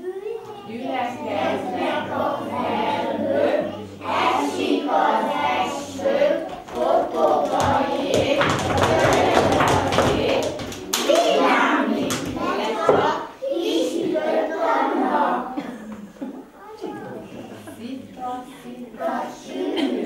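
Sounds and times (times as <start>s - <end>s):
children singing in unison: 0.6s - 15.8s, 18.6s - 20.0s
sharp claps: 6.5s - 11.4s.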